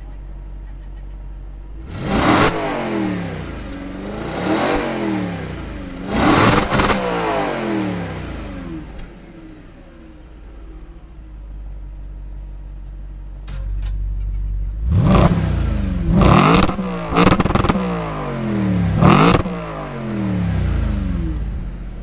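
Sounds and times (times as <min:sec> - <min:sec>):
car engine idling and revving: 0:00.0 - 0:22.0.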